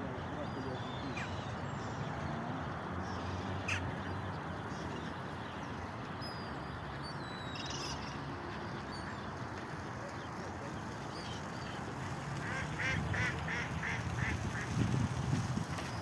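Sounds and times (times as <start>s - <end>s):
outdoor background noise: 0.0s - 16.0s
ducks quacking: 12.4s - 14.8s.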